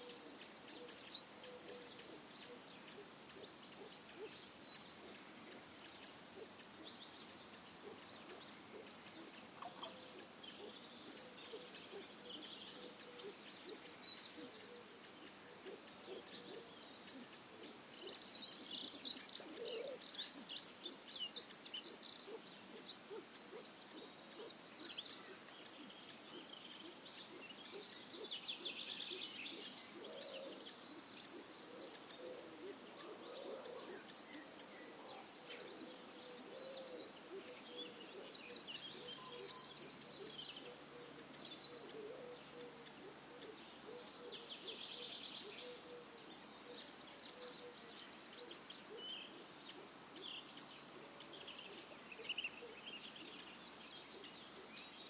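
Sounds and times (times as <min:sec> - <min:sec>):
small birds chirping and trilling: 0:00.0 - 0:55.0.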